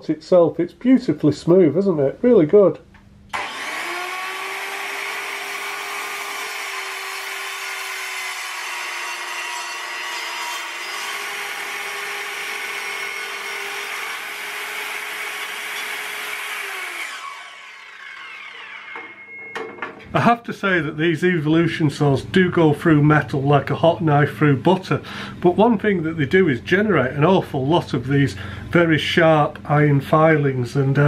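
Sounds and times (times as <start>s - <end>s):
circular saw cutting metal: 3.4s - 19.5s.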